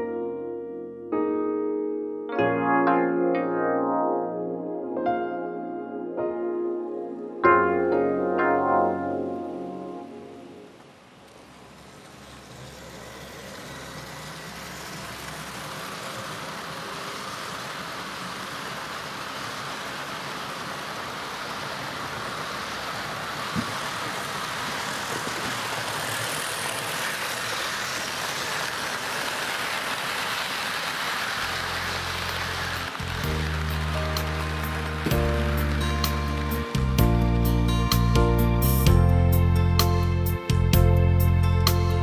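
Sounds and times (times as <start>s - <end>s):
music: 0.0s - 10.8s, 31.5s - 42.0s
model trains running on track: 10.7s - 42.0s.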